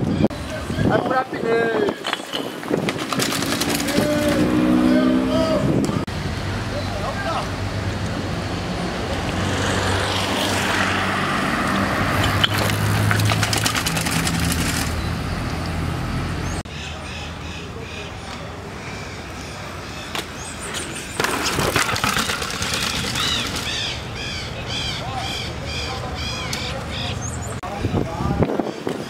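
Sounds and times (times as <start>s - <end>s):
birds calling: 0.0s - 5.6s, 12.0s - 29.0s
street noise: 0.0s - 29.0s
mountain bike rolling over paving: 2.0s - 4.5s, 12.2s - 15.0s, 20.8s - 23.9s.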